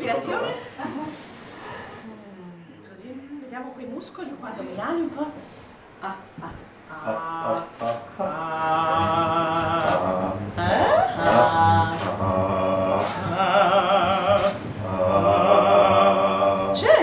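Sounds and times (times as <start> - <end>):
woman singing opera: 6.9 - 12.2, 12.9 - 17.0.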